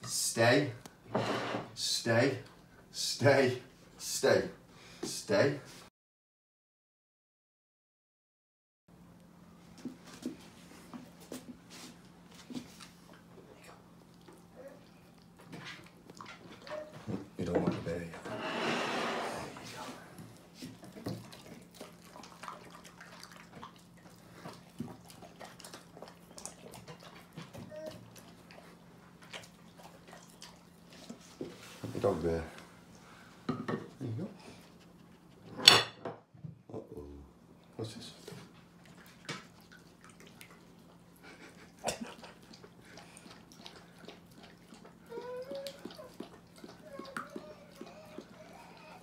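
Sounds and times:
dogs chewing and licking: 9.7s - 18.0s, 20.0s - 33.2s, 37.5s - 49.0s.

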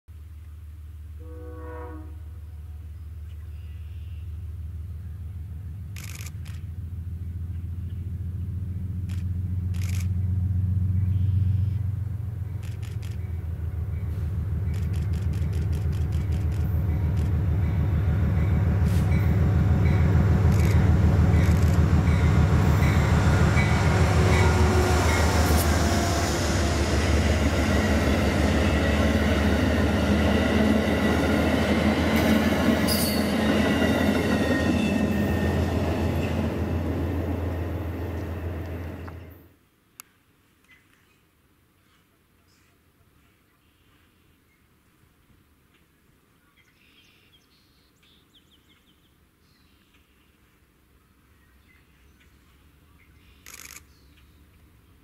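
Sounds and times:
passenger train passing: 6.6s - 39.5s
wheel-on-rail noise: 12.3s - 39.5s.

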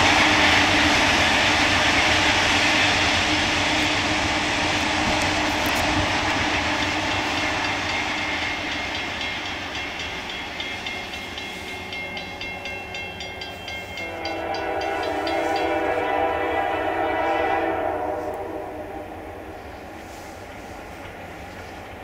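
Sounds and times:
diesel train rumble: 0.0s - 22.0s
crossing bell ringing: 6.8s - 16.1s
locomotive horn chord: 13.8s - 19.5s.

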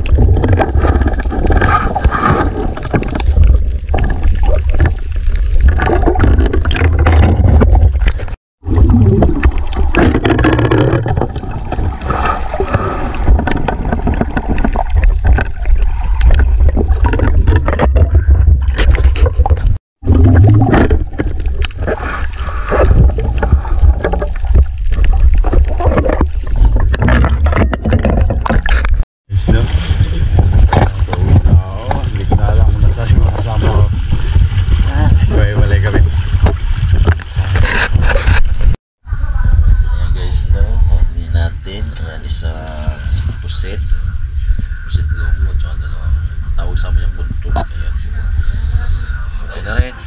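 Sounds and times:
water gurgling: 0.0s - 39.9s
low underwater rumble: 0.0s - 50.0s.

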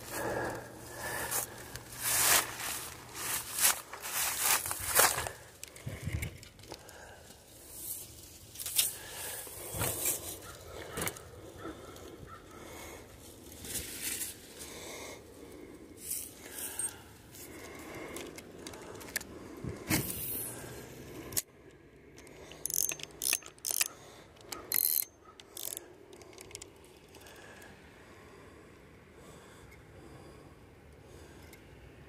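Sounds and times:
fishing reel clicking and whirring: 22.2s - 27.4s.

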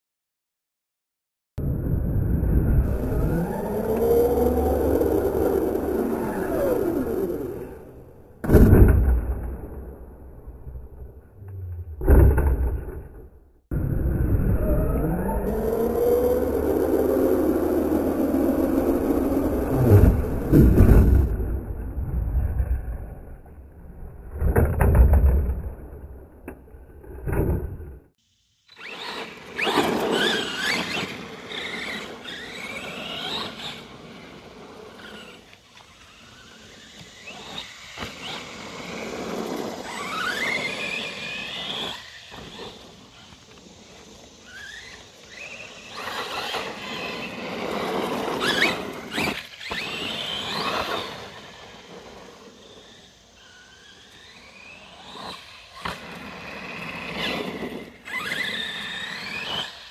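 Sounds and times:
electric motor whining: 2.7s - 8.4s, 13.8s - 21.3s, 28.7s - 59.9s.

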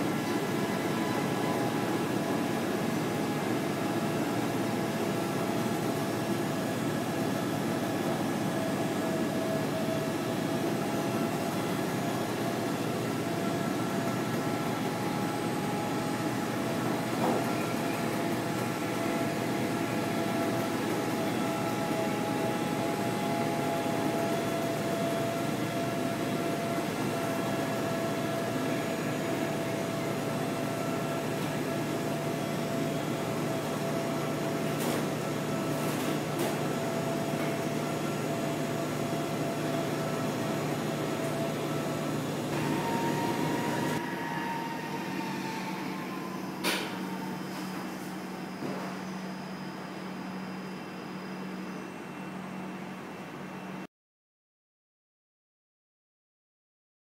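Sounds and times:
whining roller tones: 42.5s - 47.6s.

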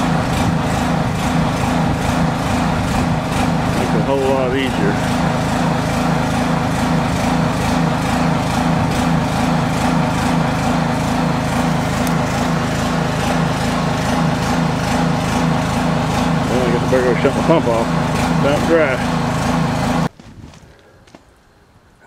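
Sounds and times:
small gasoline engine running: 0.0s - 20.1s.

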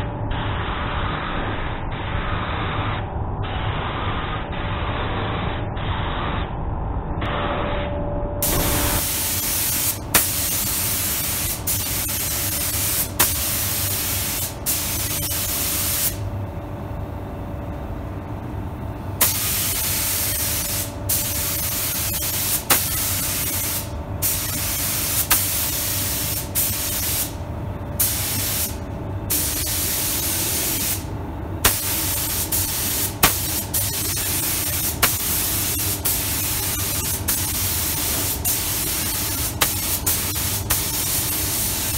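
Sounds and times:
spray gun hissing: 8.4s - 16.2s, 19.2s - 27.4s, 28.0s - 41.9s.

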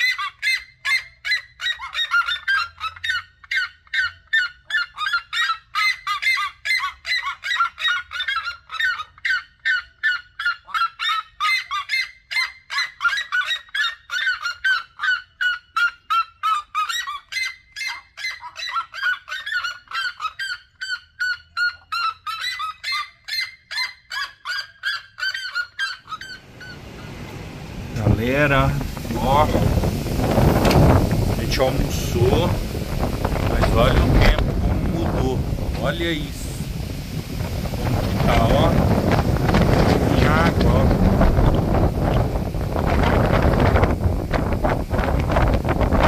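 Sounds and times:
birds calling repeated notes: 25.4s - 42.8s.

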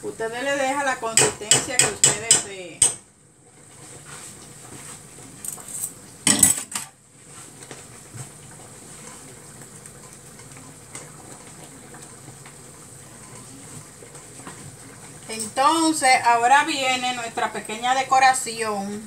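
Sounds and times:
whisk scraping and stirring: 3.6s - 6.1s, 7.2s - 15.6s.

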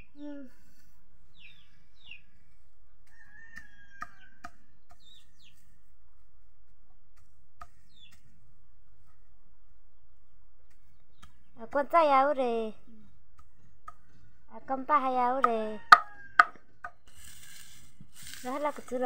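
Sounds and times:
knife chopping leaves: 15.3s - 19.0s.

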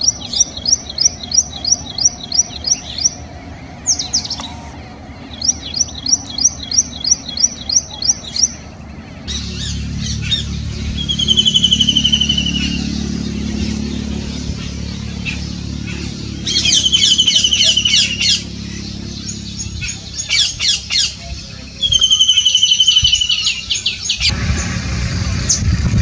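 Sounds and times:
kingfisher rattling trill: 0.0s - 8.8s, 9.4s - 21.2s
steady low rumble: 0.0s - 26.0s.

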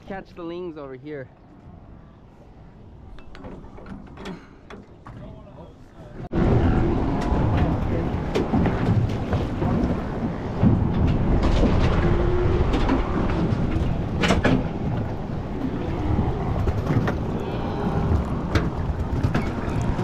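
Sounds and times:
boat on open water: 0.0s - 20.0s
wind buffeting microphone: 6.2s - 20.0s.

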